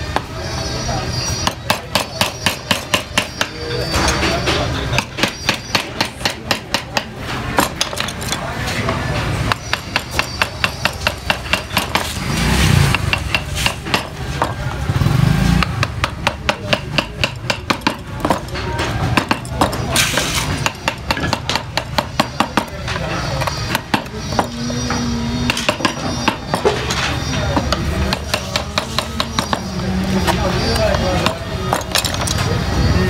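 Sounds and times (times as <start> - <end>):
passing traffic rumble: 0.0 - 33.0
mallet tapping gouge handle: 4.9 - 8.4, 15.6 - 18.5, 20.6 - 24.6.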